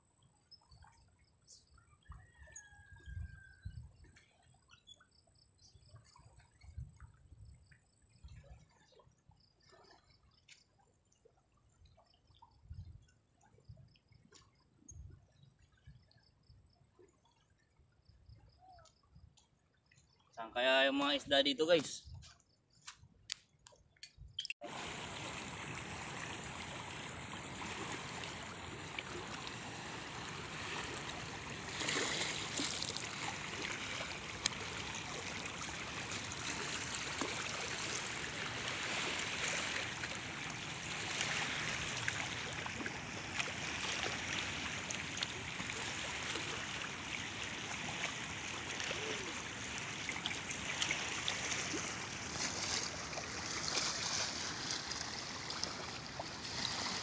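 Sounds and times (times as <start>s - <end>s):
fast river current rushing: 24.6s - 57.0s.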